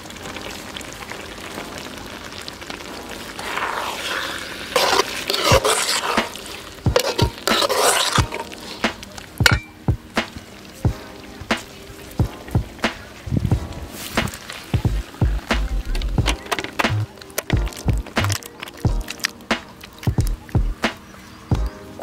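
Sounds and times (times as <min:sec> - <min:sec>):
gravy sizzling: 0:00.0 - 0:22.0
metal ladle scraping pan: 0:03.4 - 0:09.7.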